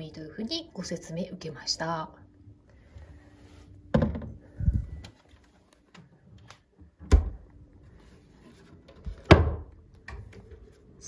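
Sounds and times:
fridge door shutting: 0:07.0 - 0:07.4.

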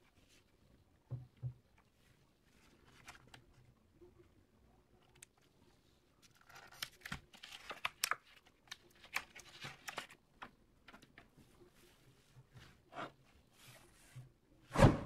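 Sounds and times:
plastic packaging crinkling and tearing: 0:06.3 - 0:10.2.

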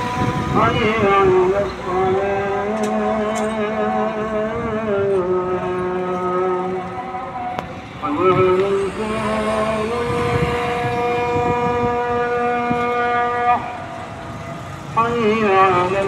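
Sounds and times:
call to prayer over loudspeaker: 0:00.0 - 0:16.0.

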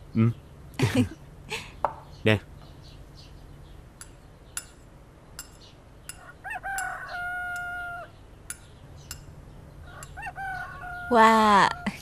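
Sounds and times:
rooster crowing: 0:06.2 - 0:08.2, 0:09.8 - 0:12.0.

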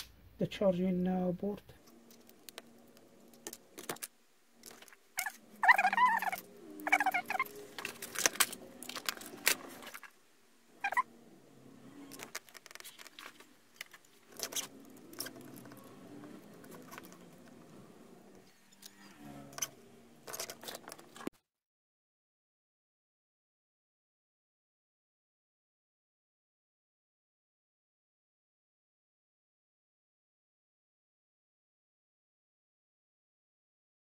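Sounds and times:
squeaky warbling sounds: 0:03.5 - 0:10.1, 0:10.7 - 0:17.6.

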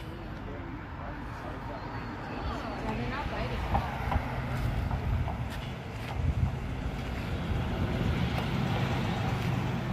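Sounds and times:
wind on microphone: 0:03.7 - 0:09.9.

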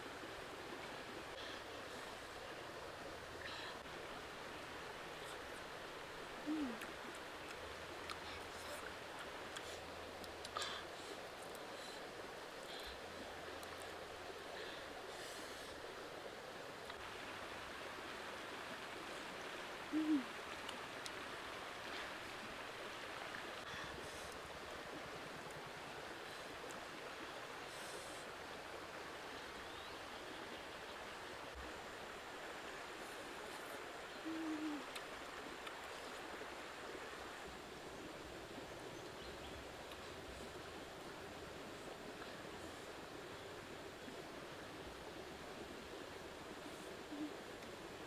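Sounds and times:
flowing water rushing: 0:00.0 - 0:48.0
bird hooting calls: 0:06.4 - 0:06.9, 0:19.9 - 0:20.4, 0:34.1 - 0:34.9, 0:47.1 - 0:47.4.

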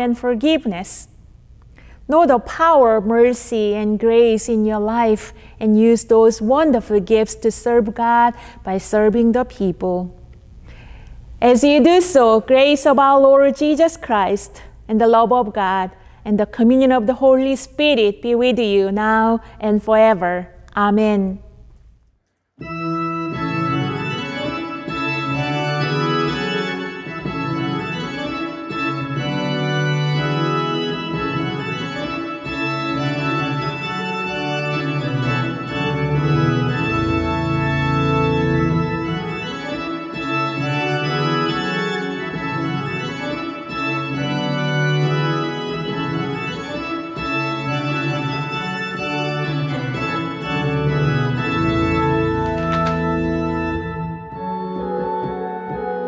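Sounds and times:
sustained organ chords: 0:22.6 - 0:56.0.

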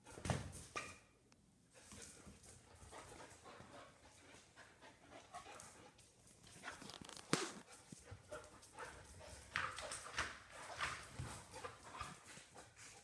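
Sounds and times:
dogs panting: 0:01.8 - 0:06.9, 0:07.6 - 0:13.0
dog claws clicking on concrete: 0:05.4 - 0:12.6.

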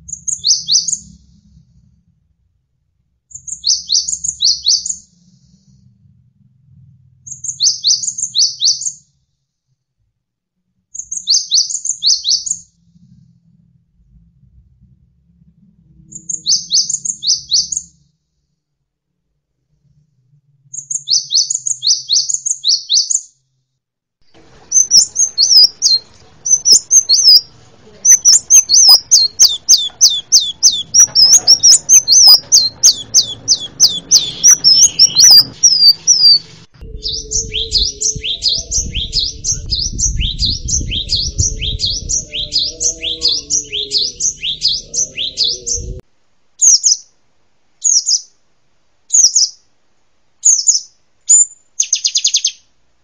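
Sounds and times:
songbirds chirping: 0:00.0 - 0:01.6, 0:03.3 - 0:05.9, 0:07.3 - 0:09.0, 0:10.9 - 0:13.3, 0:16.0 - 0:18.0, 0:20.7 - 0:23.4, 0:24.3 - 0:46.0, 0:47.8 - 0:48.4, 0:49.1 - 0:49.7, 0:50.4 - 0:52.7
low background rumble: 0:00.0 - 0:03.3, 0:05.3 - 0:07.5, 0:12.7 - 0:16.7, 0:24.3 - 0:46.6.

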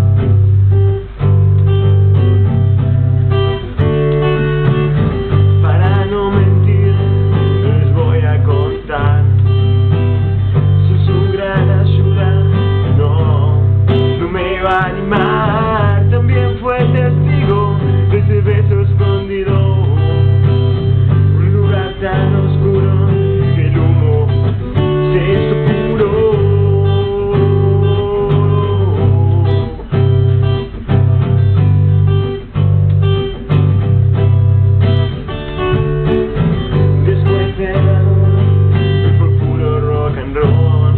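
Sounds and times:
acoustic guitar strumming chords: 0:00.0 - 0:40.9
man singing: 0:04.7 - 0:30.1, 0:36.3 - 0:40.9.

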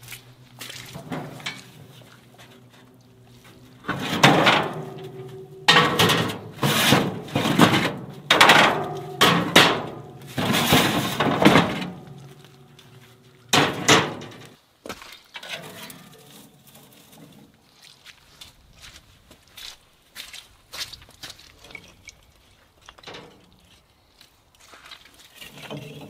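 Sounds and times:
metal grill grates clanking: 0:00.6 - 0:14.6, 0:15.4 - 0:17.4, 0:23.0 - 0:23.7.

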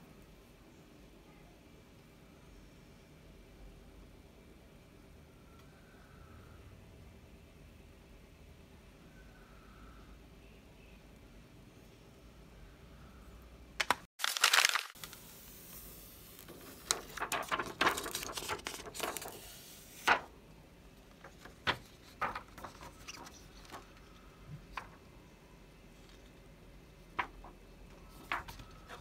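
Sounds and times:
plastic film crinkling and rustling: 0:13.8 - 0:20.3, 0:21.1 - 0:25.0, 0:27.1 - 0:29.0.

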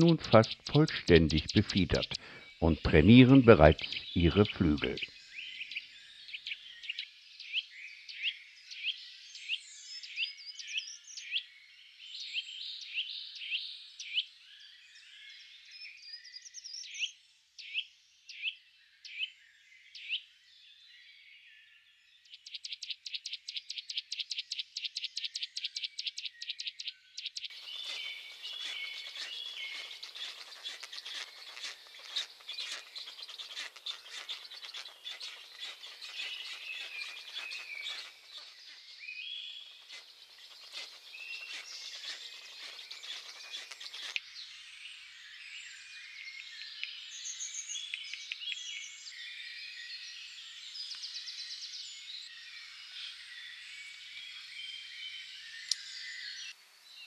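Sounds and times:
small birds chirping: 0:00.0 - 0:11.5, 0:22.1 - 0:57.0
background hiss: 0:27.5 - 0:44.2.

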